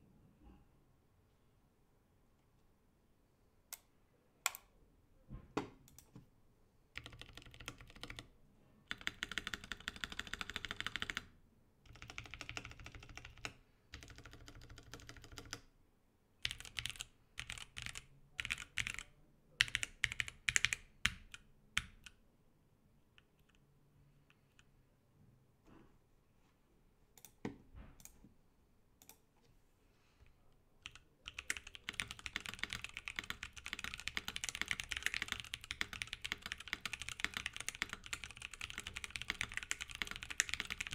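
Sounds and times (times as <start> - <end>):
typing on mechanical keyboard: 7.0 - 8.3, 8.9 - 15.7, 16.4 - 22.2, 30.8 - 40.9.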